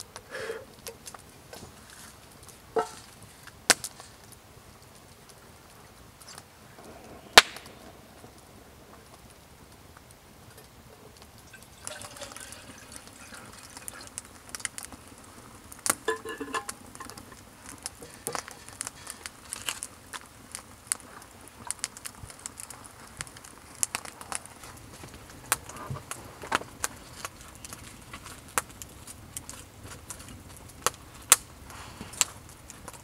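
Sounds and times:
wood fire crackling: 0.0 - 33.0
liquid being poured: 11.5 - 14.8
metal cookware clinking: 16.0 - 17.1.

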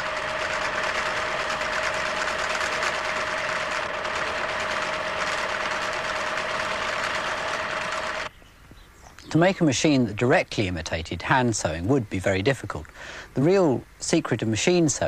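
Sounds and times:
sewing machine running: 0.0 - 8.3.

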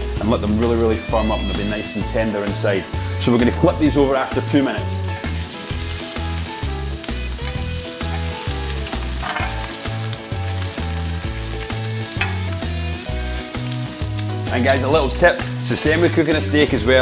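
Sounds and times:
background music with beat: 0.0 - 17.0
patties sizzling on griddle: 0.0 - 17.0.

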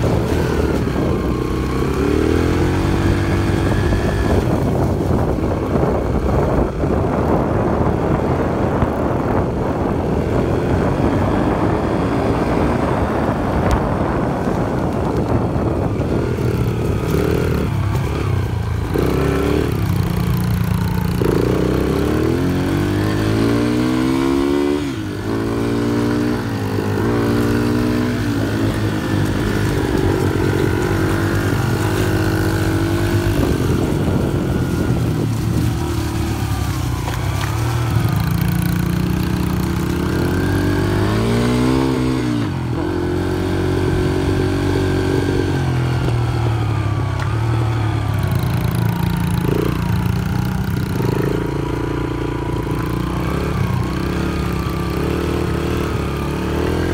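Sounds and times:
dirt bike engines revving: 0.0 - 56.9.

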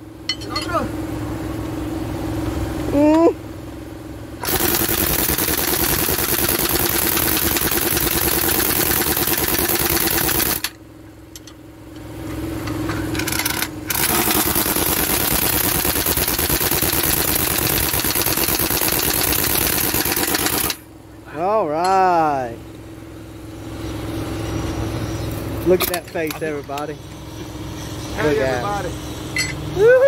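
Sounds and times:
impact wrench rattling: 13.1 - 20.8.

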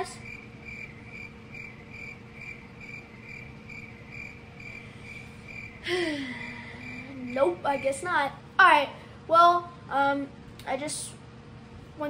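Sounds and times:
cricket chirping: 0.0 - 8.0
faint room hiss: 0.0 - 12.0.

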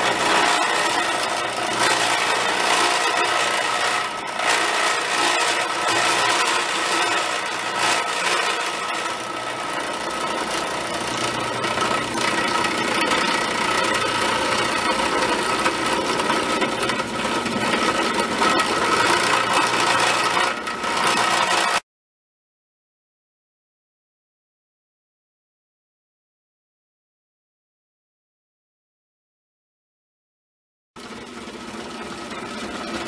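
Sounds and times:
drill press motor humming: 0.0 - 21.8, 31.0 - 33.0
end mill cutting metal: 0.0 - 21.8, 31.0 - 33.0.

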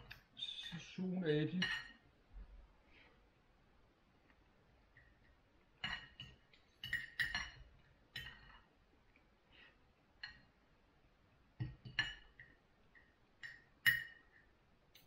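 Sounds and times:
cutlery clinking on a plate: 1.6 - 2.0, 5.8 - 8.7, 11.6 - 12.6, 13.4 - 15.0.

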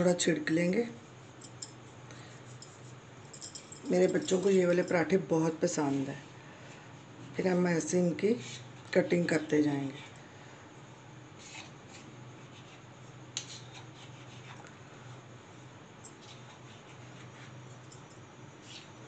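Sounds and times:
low steady hum: 0.0 - 19.0
knife scraping through dough: 11.3 - 14.7, 16.1 - 17.8.

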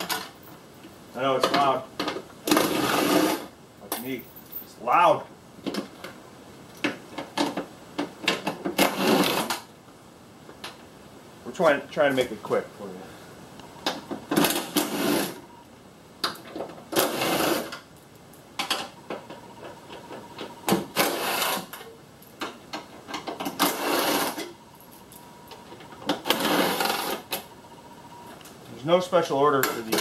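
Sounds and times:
clicks and clanks of tools: 1.4 - 2.7, 29.6 - 30.0.

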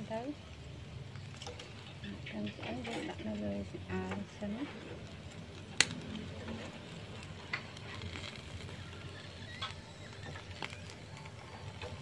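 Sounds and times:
low steady background: 0.0 - 12.0.

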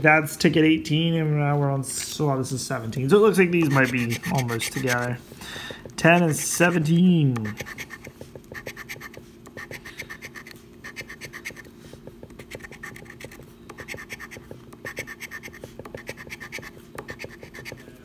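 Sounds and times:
coin scraping scratch card: 3.6 - 5.2, 6.0 - 11.7, 12.4 - 17.8.

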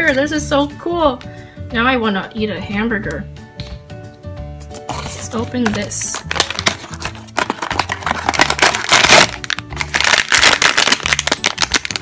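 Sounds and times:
plastic bag crinkling: 5.9 - 12.0.

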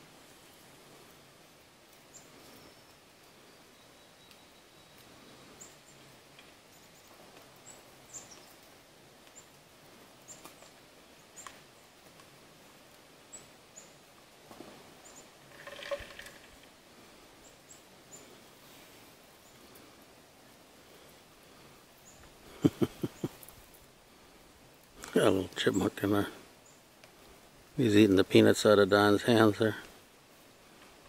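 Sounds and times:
small birds chirping: 1.1 - 12.2, 13.2 - 14.2, 14.9 - 18.6, 19.3 - 30.1
bear crunching peanuts: 15.4 - 16.6.

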